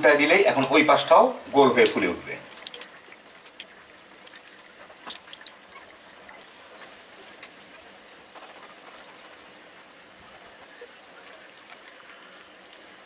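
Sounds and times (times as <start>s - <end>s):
hot oil sizzling: 6.0s - 13.0s.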